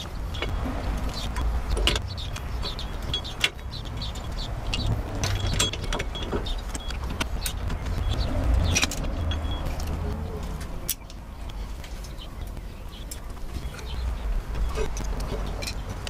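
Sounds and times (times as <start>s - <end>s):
metal clicks and clinks: 0.0s - 10.0s
steady low rumble: 0.0s - 16.0s.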